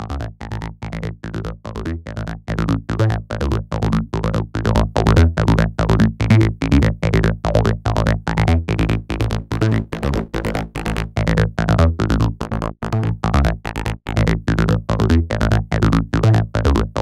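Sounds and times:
electronic dance music with clipped bass: 0:09.3 - 0:11.2.

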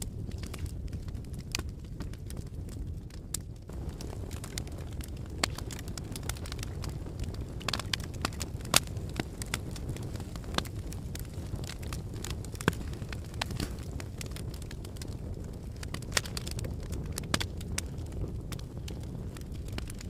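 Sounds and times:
fire crackles and pops: 0:00.0 - 0:20.0
low rumble of flames: 0:00.0 - 0:20.0.

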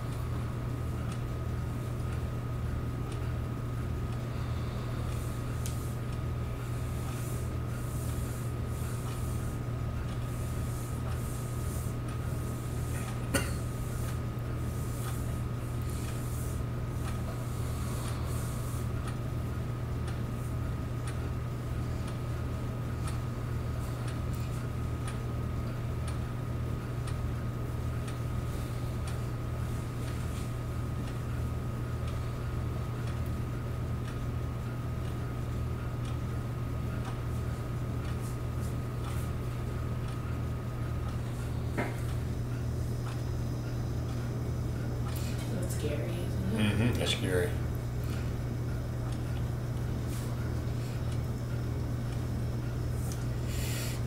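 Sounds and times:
film projector running: 0:00.0 - 0:54.0.

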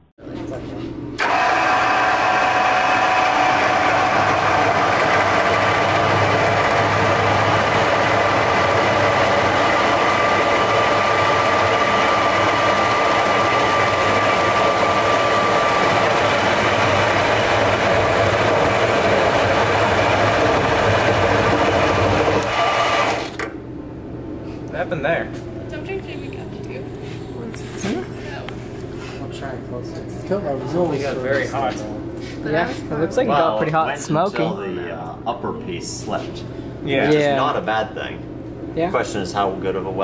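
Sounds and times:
milling machine motor running: 0:01.2 - 0:23.4.

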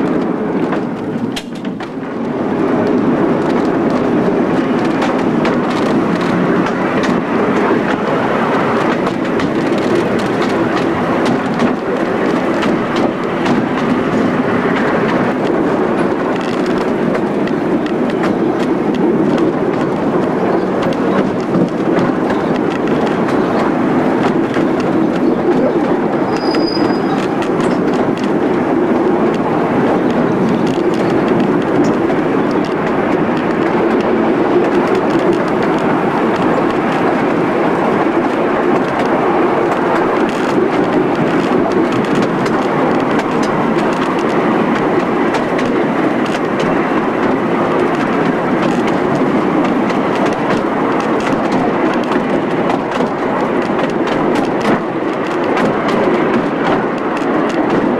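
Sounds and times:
train wheels rumbling on track: 0:00.0 - 0:57.9
brief high squeak: 0:26.3 - 0:27.2.

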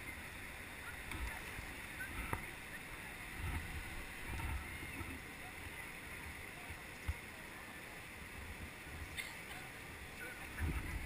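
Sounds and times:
water rushing over a weir: 0:00.0 - 0:11.0
wind buffeting microphone: 0:01.0 - 0:05.9, 0:10.2 - 0:11.0.

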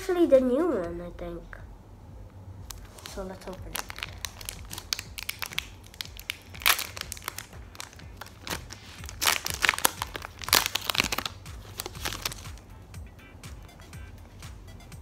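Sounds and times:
foil wrapper crinkling and tearing: 0:02.7 - 0:12.6.

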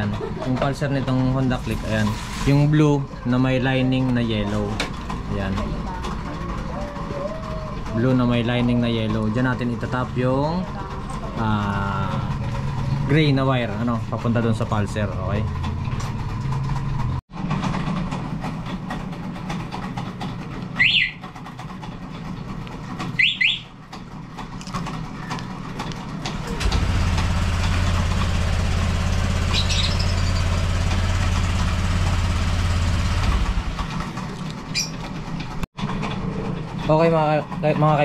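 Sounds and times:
scooter engine idling: 0:00.0 - 0:02.0, 0:03.0 - 0:38.0
scooter alarm chirping: 0:20.8 - 0:21.2, 0:23.2 - 0:23.8.

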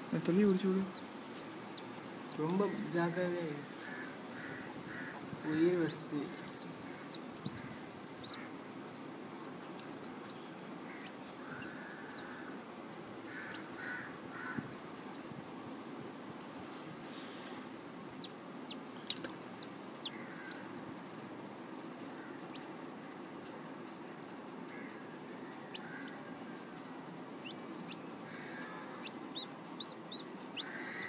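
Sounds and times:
chick peeping: 0:00.2 - 0:15.3, 0:17.4 - 0:20.7, 0:24.9 - 0:31.0.

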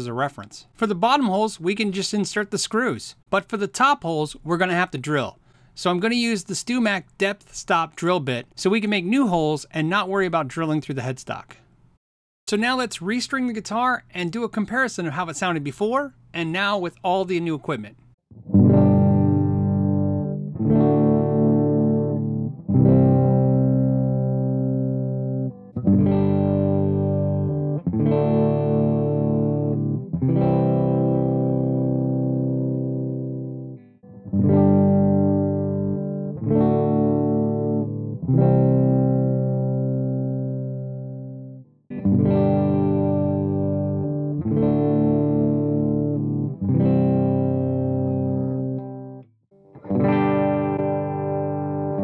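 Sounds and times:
electric guitar chords: 0:18.3 - 0:52.0.

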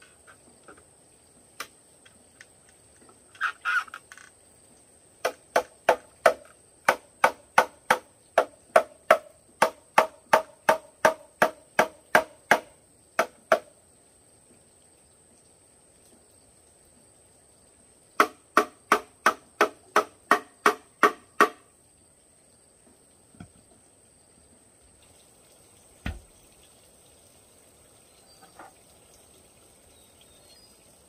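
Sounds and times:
hollow knocks on bamboo: 0:05.2 - 0:13.7, 0:18.2 - 0:21.7, 0:23.4 - 0:23.8, 0:26.0 - 0:26.3.

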